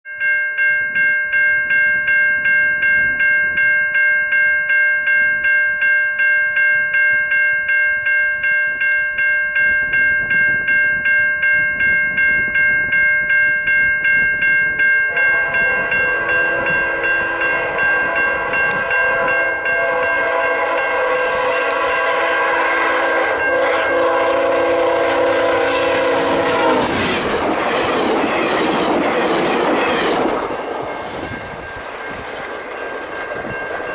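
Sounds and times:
level crossing bell ringing: 0.1 - 33.9
train passing with wheel noise: 9.6 - 33.9
locomotive horn: 15.1 - 27.9.

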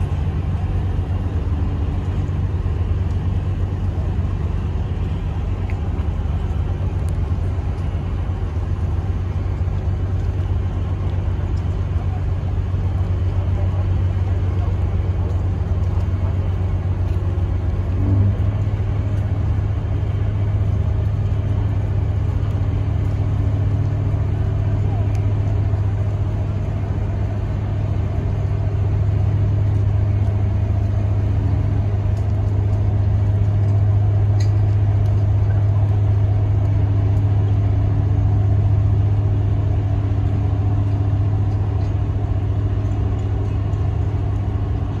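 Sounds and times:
boat engine droning: 0.0 - 45.0.

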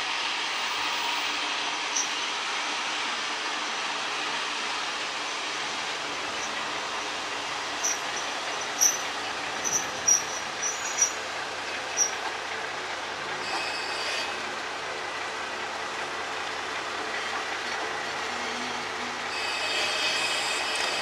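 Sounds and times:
high brake squeals: 0.0 - 2.2, 6.3 - 12.2, 13.4 - 14.6, 18.0 - 21.0
diesel railcar engine rumbling: 0.0 - 21.0.

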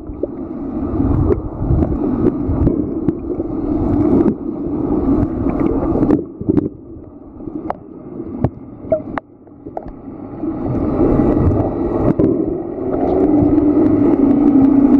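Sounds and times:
motor hum: 0.0 - 14.9
underwater water wash: 0.0 - 14.9.

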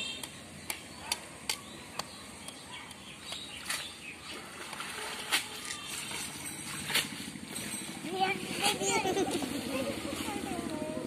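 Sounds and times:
net splashing in water: 3.6 - 7.0.

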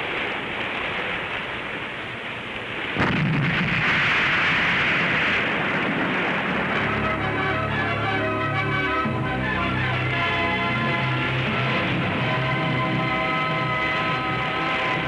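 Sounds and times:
steady rushing noise: 0.0 - 15.0
weapon blast: 3.0 - 7.2.

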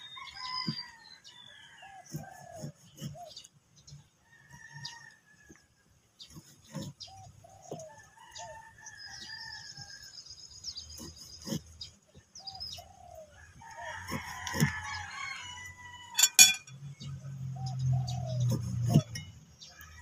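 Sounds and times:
chicken and bird calls: 0.0 - 20.0
rooster crowing: 13.4 - 16.5.

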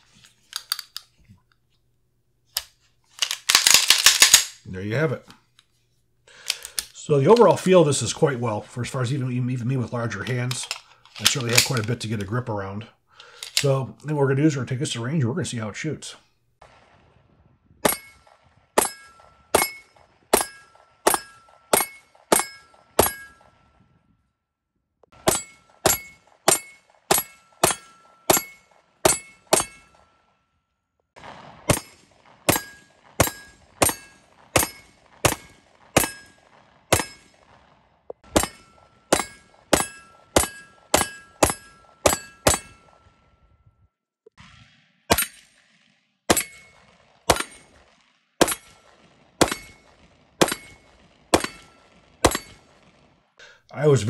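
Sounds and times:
pistol shots: 3.2 - 4.6, 10.0 - 12.3, 17.8 - 23.7, 25.1 - 30.2, 31.2 - 43.1, 44.3 - 53.2
metallic ring of steel target: 17.8 - 23.6, 25.2 - 30.2, 32.5 - 37.4, 38.2 - 43.2, 46.3 - 47.7, 48.4 - 48.8, 49.4 - 52.7.

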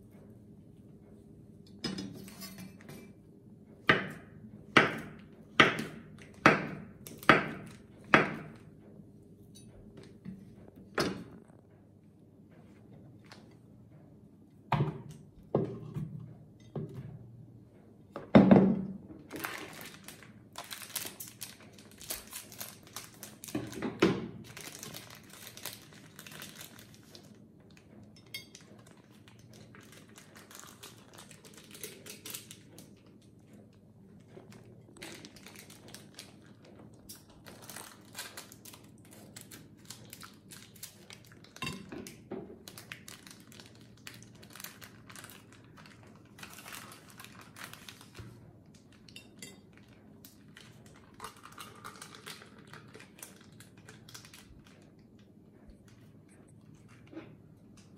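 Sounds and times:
plastic packet crinkling: 19.3 - 23.8, 24.4 - 27.4, 28.5 - 33.2, 34.4 - 55.0.

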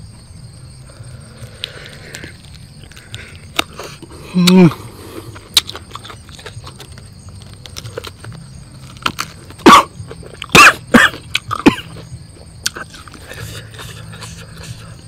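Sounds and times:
man chewing crunchily: 0.8 - 15.0
man coughing: 9.6 - 9.9, 10.5 - 12.0.

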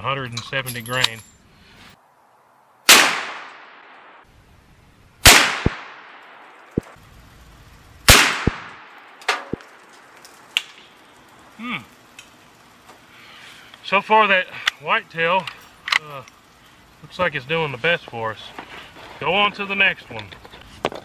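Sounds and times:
rifle shots ringing: 2.9 - 4.2, 5.2 - 7.0, 8.1 - 9.7.

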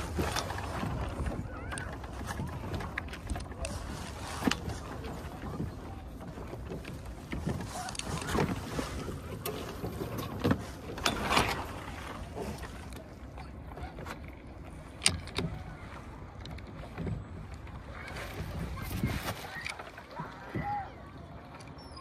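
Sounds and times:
water slapping against hull: 0.0 - 22.0
water splashes: 0.0 - 22.0
wind noise on microphone: 13.8 - 20.9.

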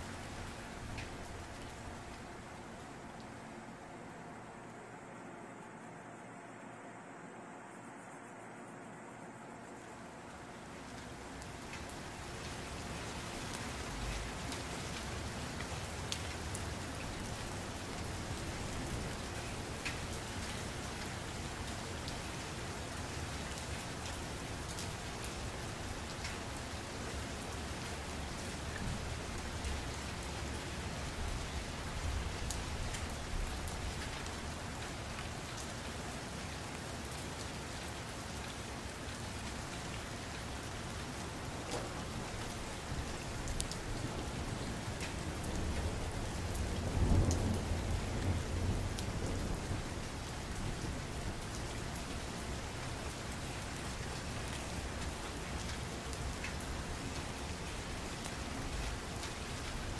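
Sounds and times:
steady rain falling: 0.0 - 59.9
low rumble of thunder: 41.5 - 53.1.

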